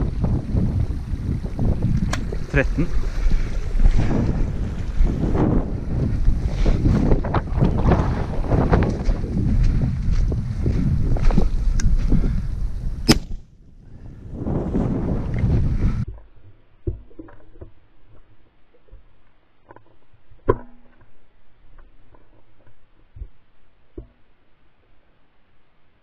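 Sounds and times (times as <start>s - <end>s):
wind buffeting microphone: 0.0s - 16.2s.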